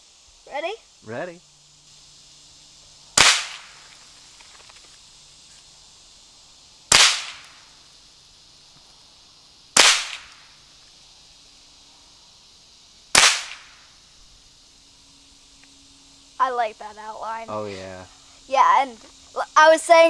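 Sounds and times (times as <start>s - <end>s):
rifle shots: 3.2s - 3.8s, 6.9s - 7.5s, 9.8s - 10.4s, 13.1s - 13.7s.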